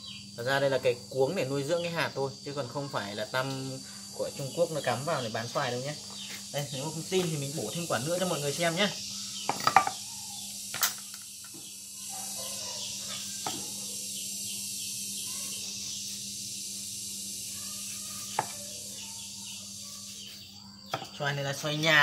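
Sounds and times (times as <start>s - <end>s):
steady hiss and low hum: 0.0s - 22.0s
cleaver knocking on chopping block: 9.5s - 10.0s.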